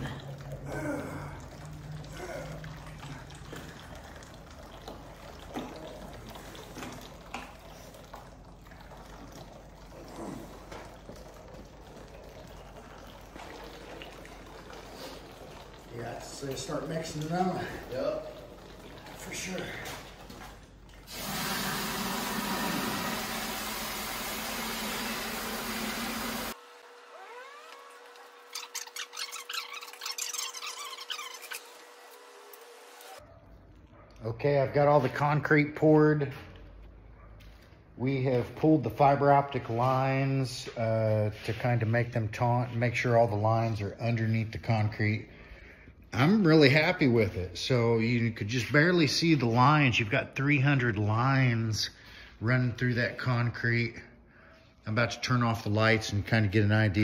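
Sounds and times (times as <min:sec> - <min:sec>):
wet grout sloshing and pouring: 0:00.0 - 0:36.9
electric drill paddle mixer churning: 0:21.0 - 0:33.2.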